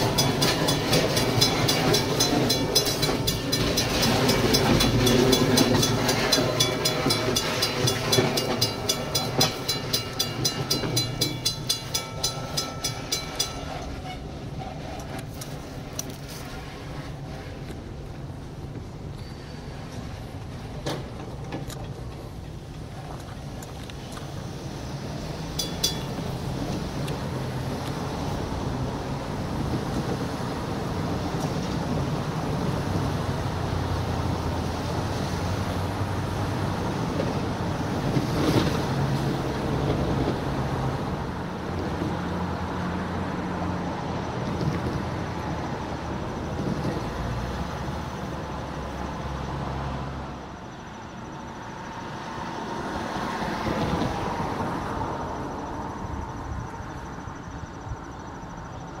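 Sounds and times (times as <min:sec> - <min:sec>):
diesel locomotive engine drone: 0:00.0 - 0:59.0
freight cars rumbling on rails: 0:00.0 - 0:59.0.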